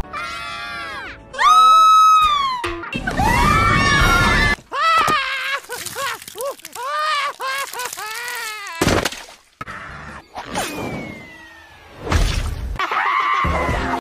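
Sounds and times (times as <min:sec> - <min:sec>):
cartoon group screaming: 0:00.1 - 0:08.8, 0:12.8 - 0:14.0.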